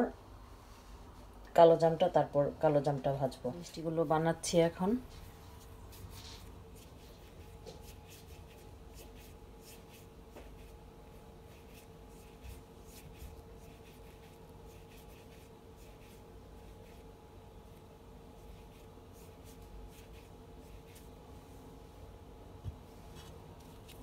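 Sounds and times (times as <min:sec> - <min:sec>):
faint steady hum: 0:00.0 - 0:24.0
palms rubbing dough: 0:03.6 - 0:21.8.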